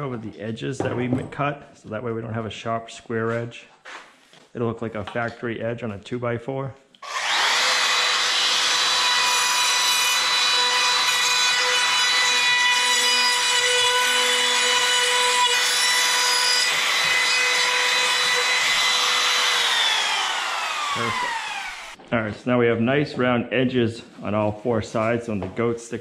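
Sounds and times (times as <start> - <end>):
router motor spinning down: 7.0 - 12.3, 15.4 - 22.0
router bit cutting wood: 7.0 - 22.0
router motor whining: 7.0 - 22.0.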